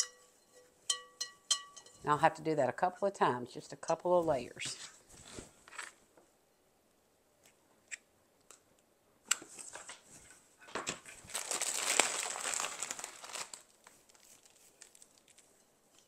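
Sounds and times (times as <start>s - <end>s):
dry moss crackling and rustling: 11.2s - 16.0s.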